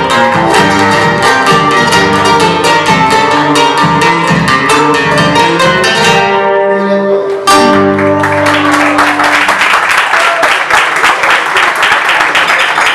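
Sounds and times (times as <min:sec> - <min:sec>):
strummed chord ringing out: 0:00.0 - 0:09.2
audience applause: 0:08.0 - 0:12.9.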